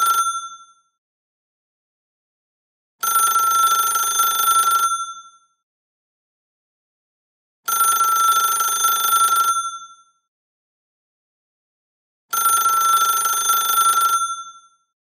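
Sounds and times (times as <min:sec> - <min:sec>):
telephone ringing: 0:00.0 - 0:00.7, 0:03.0 - 0:05.3, 0:07.7 - 0:09.9, 0:12.3 - 0:14.6.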